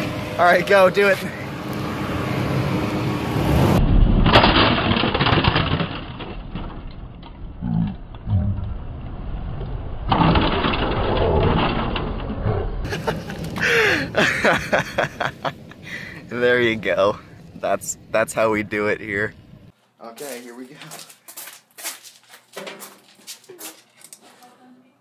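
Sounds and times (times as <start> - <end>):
car engine and tyre noise: 0.0 - 19.7
plastic case crushing and cracking: 4.3 - 7.3.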